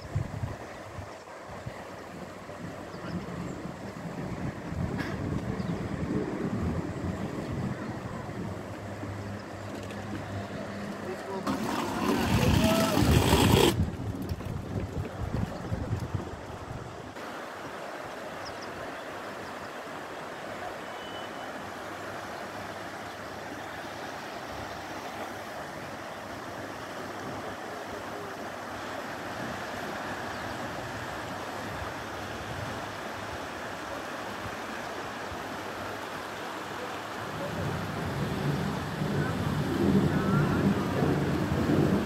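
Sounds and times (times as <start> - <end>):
river flowing over stones: 0.0 - 42.0.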